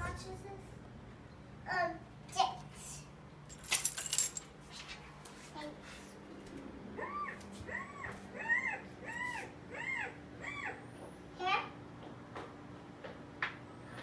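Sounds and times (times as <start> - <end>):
high whimpering calls: 7.0 - 11.0.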